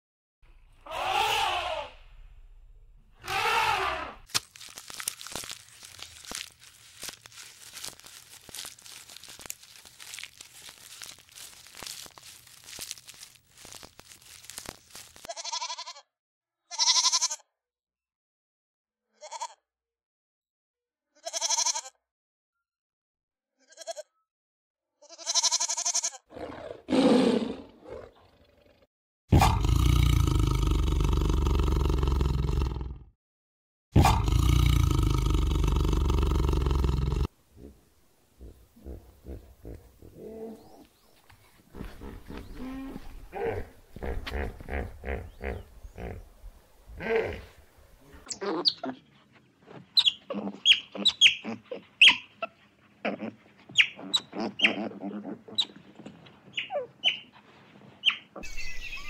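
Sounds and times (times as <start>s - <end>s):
leaves and twigs crackling: 4.2s - 15.3s, 38.4s - 48.4s
goats bleating: 15.2s - 16.0s, 16.7s - 17.4s, 21.2s - 21.9s, 25.1s - 26.2s
big cat roaring: 26.3s - 33.1s, 34.0s - 37.8s, 41.8s - 46.3s, 47.0s - 47.6s.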